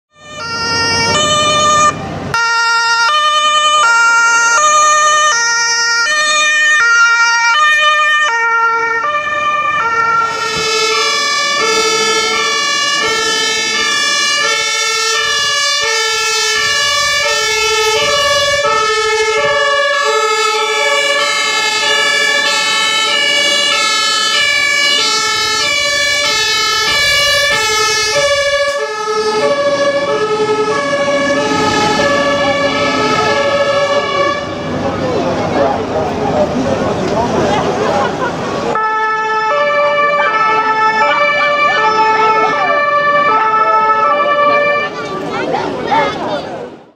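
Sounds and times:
two-tone emergency sirens: 0:00.1 - 0:36.1, 0:37.3 - 0:46.1.

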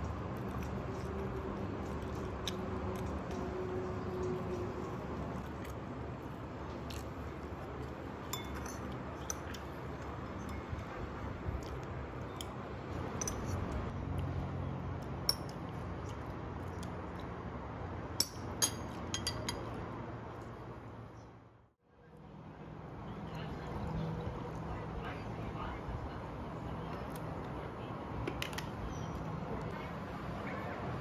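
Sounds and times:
spoon clinking against ceramic bowl: 0:08.3 - 0:09.5, 0:18.2 - 0:19.7.

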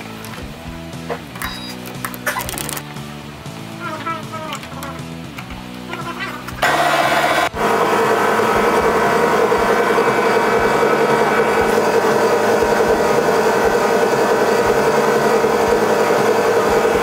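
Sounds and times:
metal lathe running: 0:06.6 - 0:17.0.

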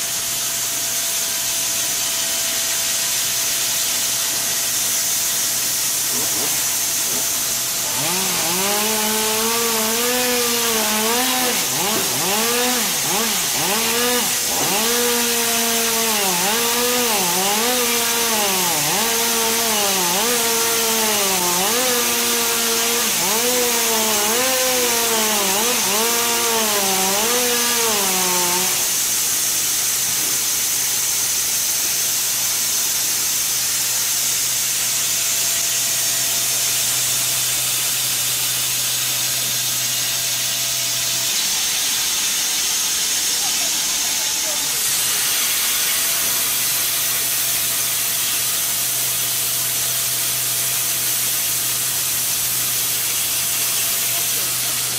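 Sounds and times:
band saw cutting log: 0:00.0 - 0:54.9
steady hiss: 0:29.0 - 0:48.6.

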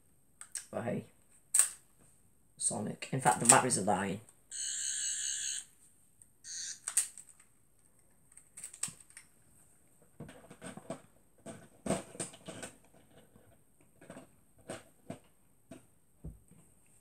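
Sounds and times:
toy electronic buzz: 0:04.5 - 0:05.7, 0:06.4 - 0:06.8.

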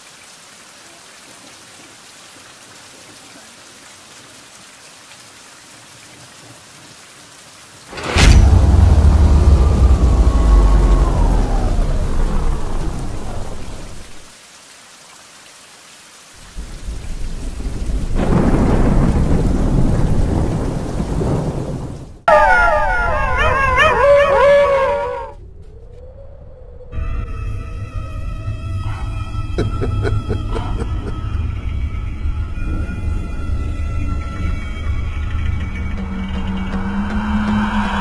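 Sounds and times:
heavy rain: 0:00.0 - 0:25.4, 0:28.9 - 0:38.0
deep thunder rumble: 0:07.9 - 0:14.3, 0:16.6 - 0:24.9
thunderclap: 0:07.9 - 0:14.3, 0:16.6 - 0:22.4
overlapping wavering howls: 0:08.2 - 0:14.2, 0:22.3 - 0:29.5.

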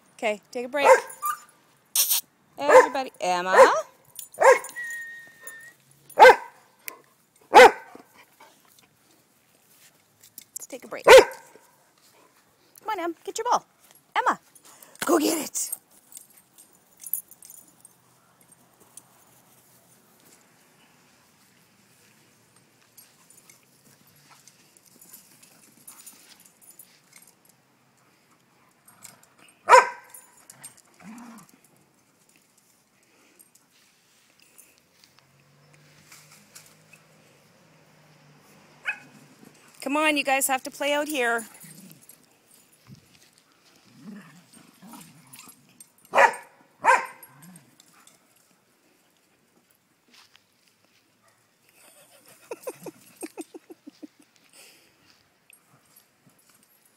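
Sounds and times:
dog barking: 0:00.8 - 0:01.4, 0:02.6 - 0:04.8, 0:06.2 - 0:06.6, 0:07.5 - 0:08.0, 0:11.1 - 0:11.6, 0:29.7 - 0:30.1, 0:38.8 - 0:39.1, 0:46.1 - 0:47.3
dogs growling: 0:30.9 - 0:31.6, 0:43.9 - 0:45.7.

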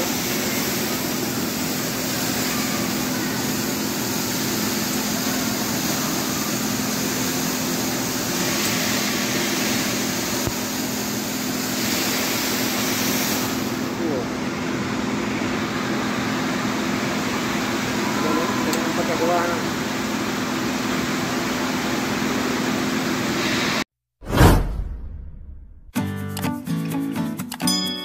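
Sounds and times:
water fountain rushing: 0:00.0 - 0:14.1.

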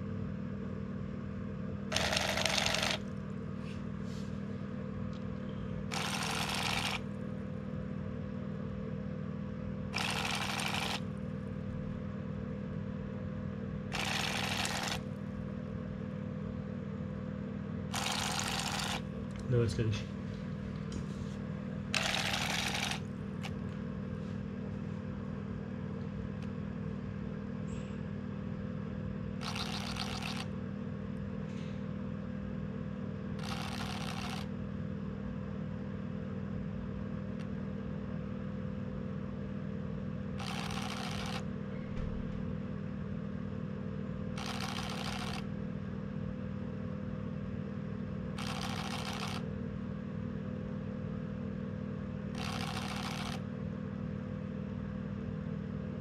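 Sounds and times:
small motor buzzing: 0:01.9 - 0:03.1, 0:05.9 - 0:07.1, 0:09.9 - 0:11.1, 0:13.9 - 0:15.0, 0:17.9 - 0:19.1, 0:21.9 - 0:23.6, 0:29.4 - 0:30.5, 0:33.4 - 0:34.5, 0:40.4 - 0:41.4, 0:44.4 - 0:45.4, 0:48.4 - 0:49.4, 0:52.3 - 0:53.4.

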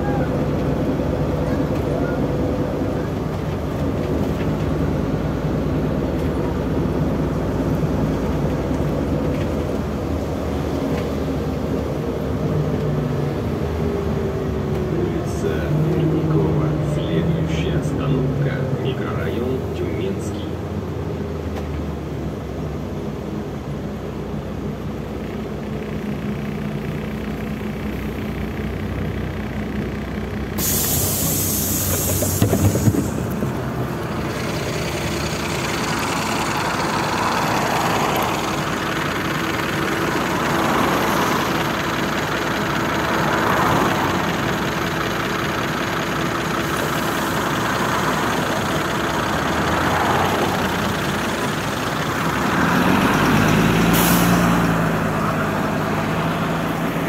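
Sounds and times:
bus engine: 0:00.0 - 0:57.0
street noise: 0:00.0 - 0:57.0
compressed air hiss: 0:30.6 - 0:32.8.

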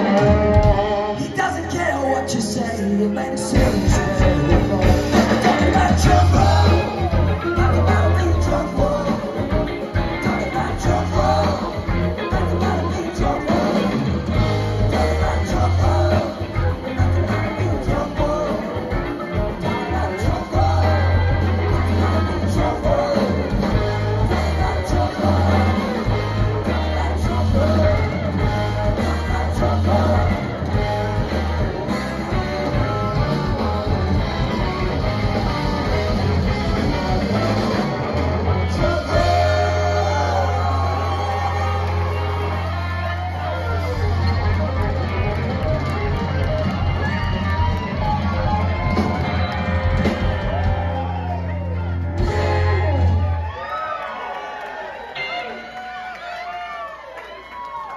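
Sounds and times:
person singing: 0:00.0 - 0:34.8, 0:38.5 - 0:44.4
melodic lead line: 0:00.0 - 0:53.4
live rock band playing: 0:00.0 - 0:53.8
bass guitar: 0:00.0 - 0:53.9
drums: 0:00.0 - 0:57.9
electric guitars: 0:00.0 - 0:57.9.

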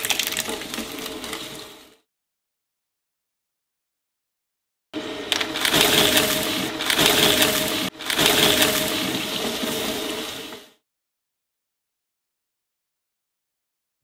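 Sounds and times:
shredder motor hum: 0:05.0 - 0:10.0
shredder crunching paper: 0:05.3 - 0:10.2.

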